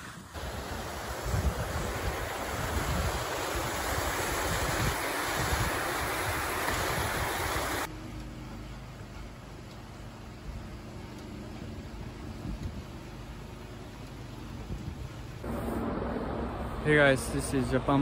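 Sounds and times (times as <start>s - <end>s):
water rushing down stone channel: 0.4s - 7.9s
wind rumble on microphone: 0.7s - 7.6s, 11.6s - 13.0s, 14.5s - 16.9s.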